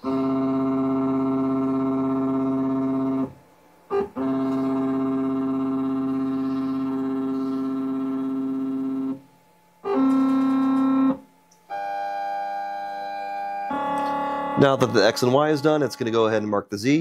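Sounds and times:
stepper motors whining: 0:00.0 - 0:09.2.

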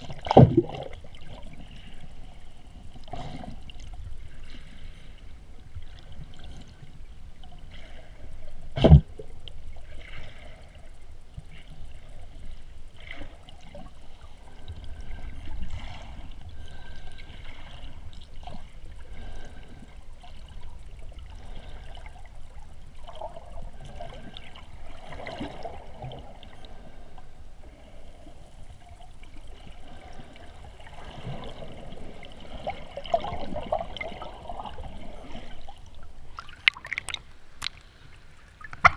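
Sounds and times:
underwater water swishing: 0:00.0 - 0:38.9.

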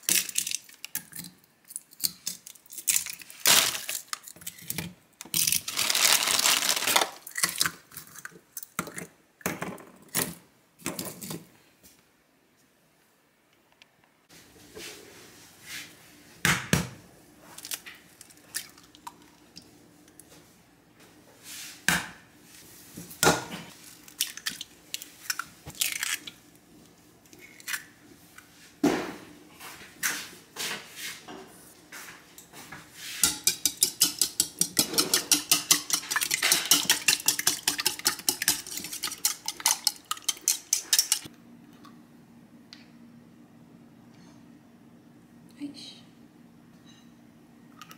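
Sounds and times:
eggshells cracking on bowl: 0:00.0 - 0:08.8, 0:24.0 - 0:26.4
whisk clinking in ceramic bowl: 0:33.2 - 0:41.3.

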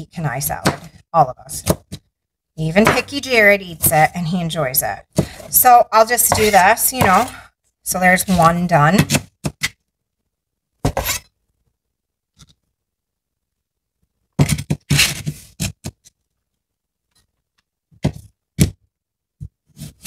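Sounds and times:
knife scraping on cutting board: 0:06.2 - 0:07.4, 0:10.9 - 0:11.3.

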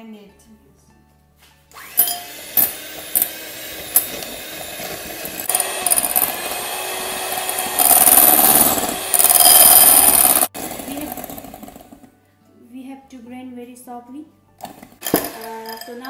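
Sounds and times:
electric hand mixer running: 0:01.7 - 0:12.1.

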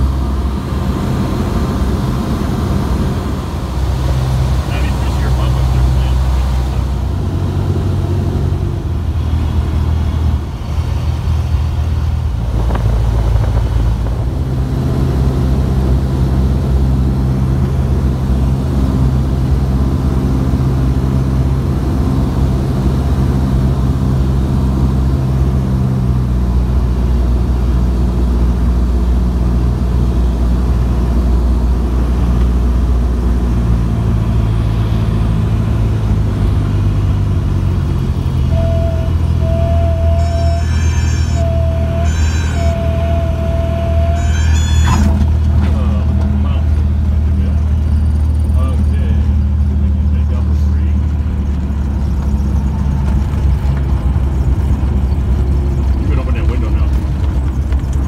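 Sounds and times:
plane engine and propeller droning: 0:00.0 - 0:58.0.

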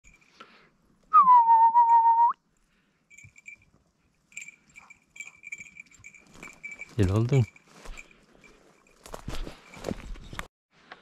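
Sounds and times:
loud descending whistle: 0:01.2 - 0:02.4.

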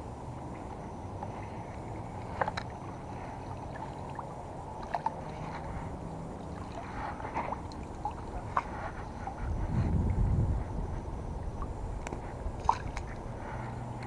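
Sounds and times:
low outdoor rush: 0:00.0 - 0:14.0.

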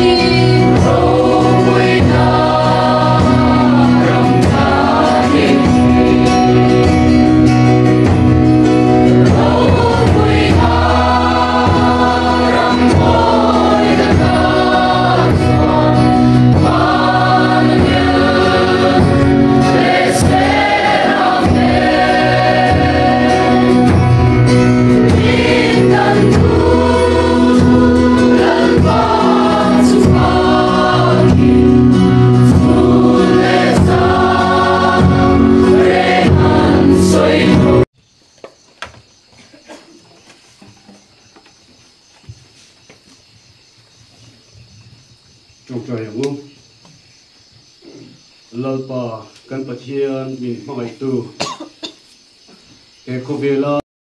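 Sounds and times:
crowd singing a hymn: 0:00.0 - 0:37.9
held musical accompaniment: 0:00.0 - 0:37.9.

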